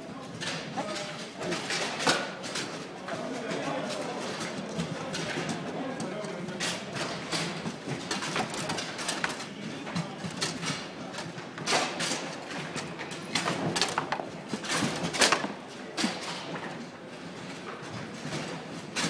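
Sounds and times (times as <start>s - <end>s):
foosball rods clacking: 6.5s - 16.6s.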